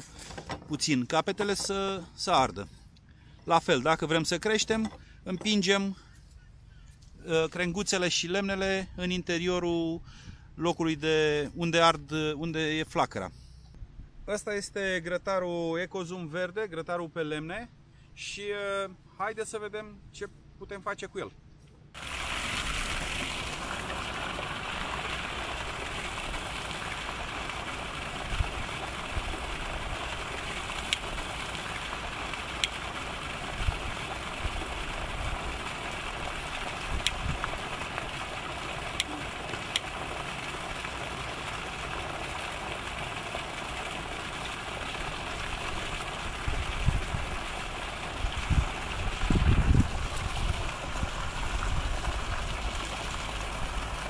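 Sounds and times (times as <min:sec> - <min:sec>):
wind bumps on microphone: 0:46.5 - 0:47.4, 0:48.2 - 0:52.4.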